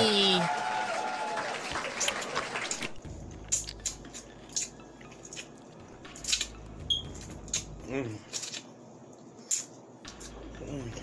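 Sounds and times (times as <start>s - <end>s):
biting and chewing corn: 2.0s - 6.6s.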